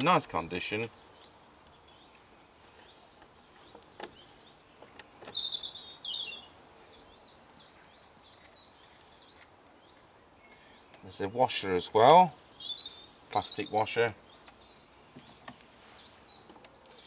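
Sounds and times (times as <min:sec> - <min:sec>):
sharp metal clicks: 0:00.0 - 0:02.0
bird chirping: 0:00.0 - 0:17.0.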